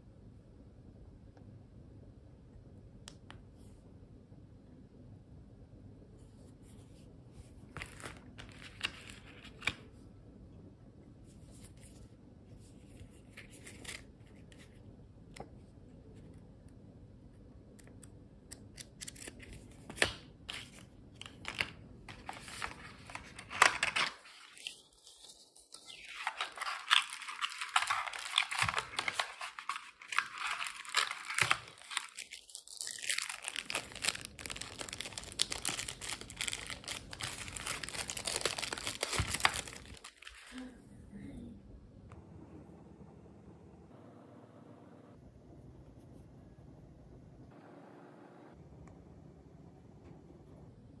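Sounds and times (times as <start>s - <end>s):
wrapping crinkling and tearing: 7.8s - 9.8s, 18.8s - 40.6s.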